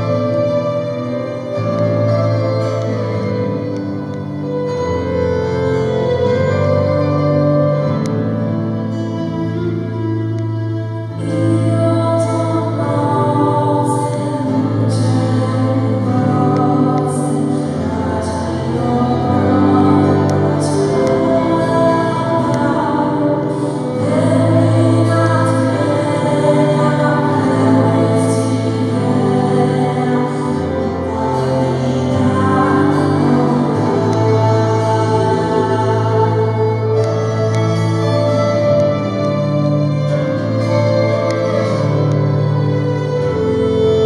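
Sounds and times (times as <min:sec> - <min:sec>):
acoustic guitar: 0:00.0 - 0:44.0
bass notes: 0:00.0 - 0:44.0
sustained keyboard chords: 0:00.0 - 0:44.0
woman singing slow melody: 0:11.1 - 0:39.3.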